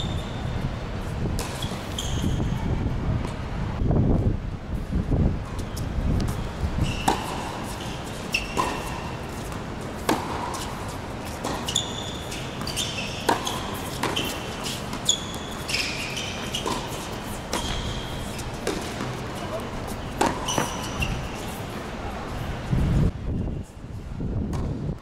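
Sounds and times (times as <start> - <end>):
shoe squeaks on court: 0.0 - 0.6, 1.4 - 2.7, 5.5 - 9.6, 10.5 - 21.7
tennis ball struck by racket: 7.0 - 7.7, 8.4 - 10.8, 12.6 - 15.0, 16.4 - 20.9.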